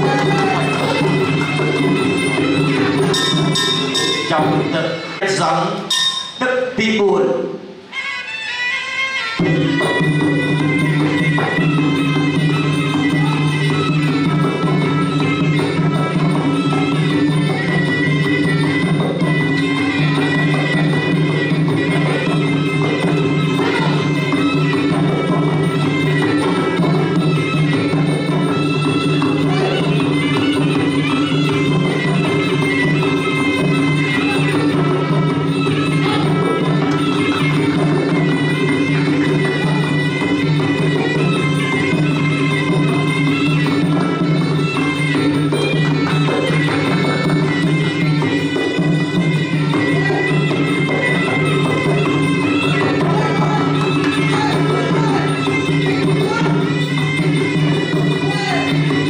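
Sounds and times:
small cymbals: 0:00.0 - 0:06.8
drum strokes: 0:00.0 - 0:07.0
hand drums: 0:00.0 - 0:08.0, 0:09.1 - 0:59.0
reed oboe melody: 0:07.9 - 0:59.0.

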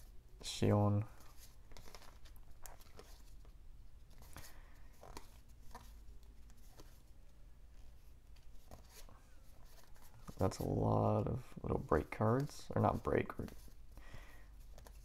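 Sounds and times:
trading cards clicking and rustling: 0:00.9 - 0:03.5, 0:04.1 - 0:07.1.

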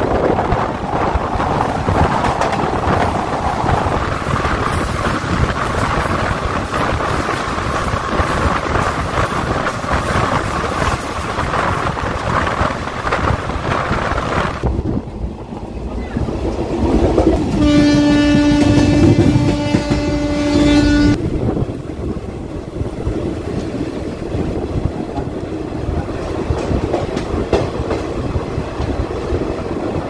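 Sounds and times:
train wheels on track: 0:00.0 - 0:30.0
wind on microphone: 0:00.0 - 0:30.0
train horn: 0:17.5 - 0:21.2.

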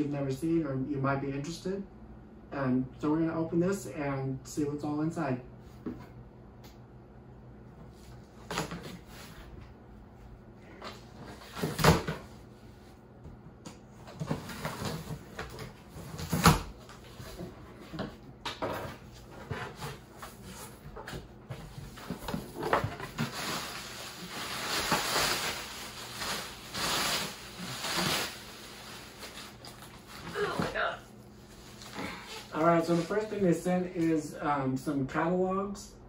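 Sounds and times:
crinkly plastic packing rustling: 0:21.5 - 0:30.8, 0:31.4 - 0:33.4.

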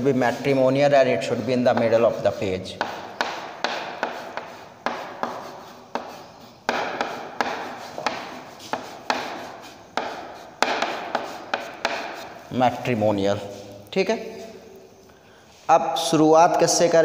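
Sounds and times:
chalk tapping on chalkboard: 0:00.3 - 0:12.5.

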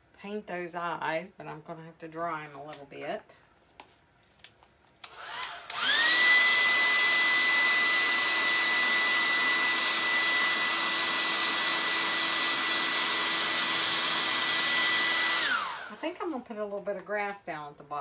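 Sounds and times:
hair dryer whining and blowing: 0:05.0 - 0:16.5.

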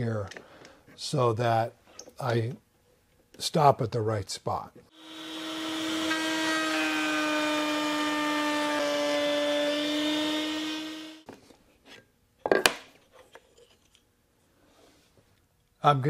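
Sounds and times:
router cutting wood: 0:04.9 - 0:11.2.

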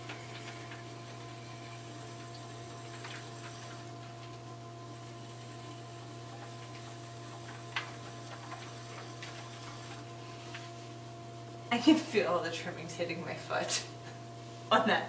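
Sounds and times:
pottery wheel humming: 0:00.0 - 0:15.0.

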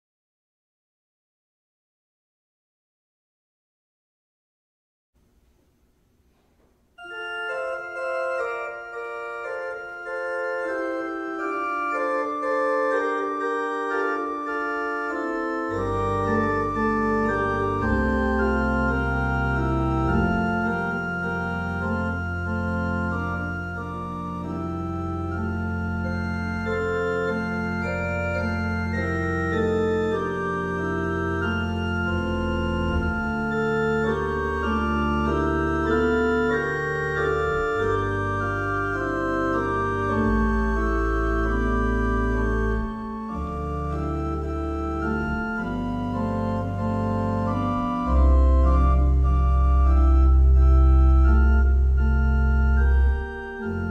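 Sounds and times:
organ playing sustained chords: 0:07.0 - 0:53.9.

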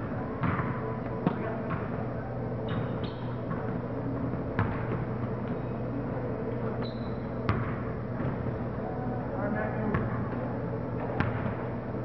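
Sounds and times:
steady low hum: 0:00.0 - 0:12.0
sneaker squeak: 0:02.7 - 0:03.8, 0:06.7 - 0:08.4.

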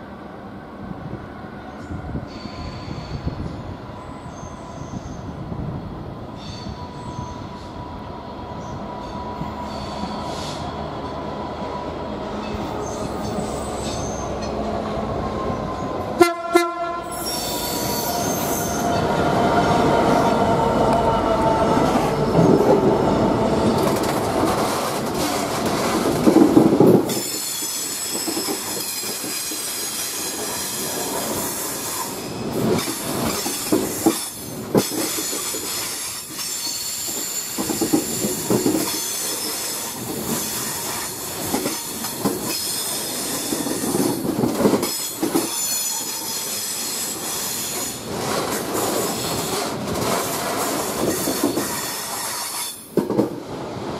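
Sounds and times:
diesel locomotive engine: 0:00.0 - 0:53.9
train horn blast: 0:16.2 - 0:18.8
wheel squeal: 0:17.1 - 0:19.0.

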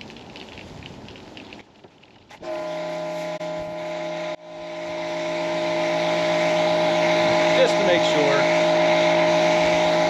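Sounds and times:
water jet hissing: 0:02.3 - 0:10.0
pressure washer motor humming: 0:02.4 - 0:10.0.

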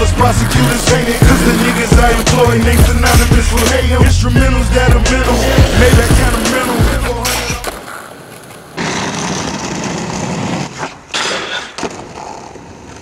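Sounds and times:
skateboard wheels rolling on asphalt: 0:00.0 - 0:13.0
skateboard clack: 0:06.3 - 0:13.0.

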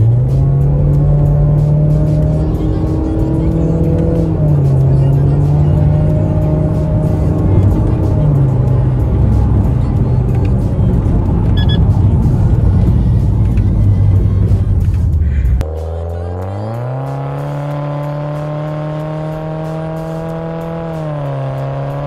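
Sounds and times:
car engine exhaust note: 0:00.0 - 0:22.0
music: 0:00.0 - 0:22.0.

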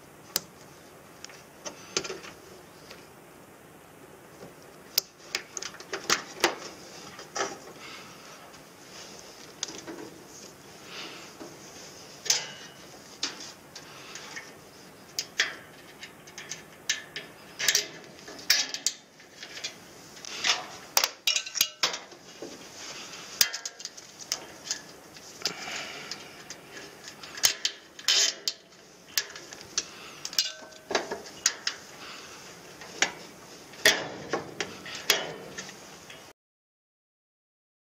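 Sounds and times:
wiring and clips rattling on metal: 0:15.2 - 0:22.2, 0:26.1 - 0:31.8.

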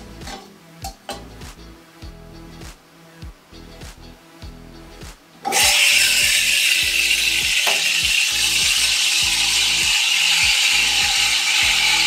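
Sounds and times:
espresso machine steam wand hissing: 0:05.6 - 0:12.0.

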